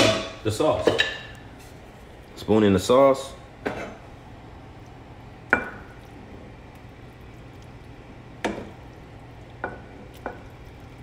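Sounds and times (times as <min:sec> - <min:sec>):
spoon knocking against pot: 0:08.4 - 0:08.8.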